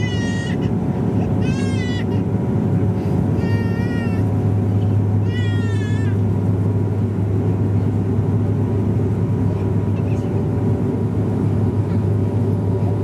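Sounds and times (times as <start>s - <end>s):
propeller aircraft cabin drone: 0.0s - 13.0s.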